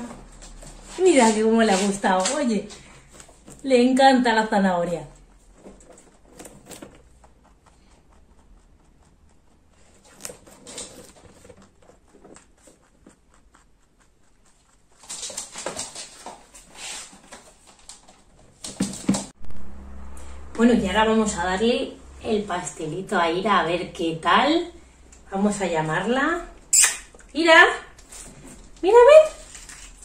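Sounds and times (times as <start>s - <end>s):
rabbit chewing crunching: 0.5s - 19.0s, 27.1s - 30.0s.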